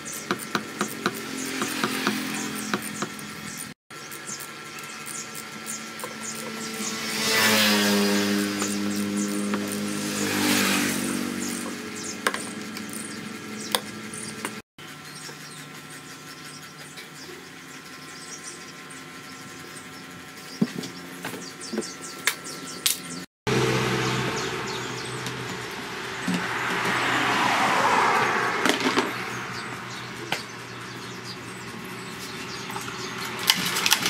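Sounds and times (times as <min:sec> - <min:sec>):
small petrol engine running: 0:00.0 - 0:21.8, 0:29.8 - 0:34.0.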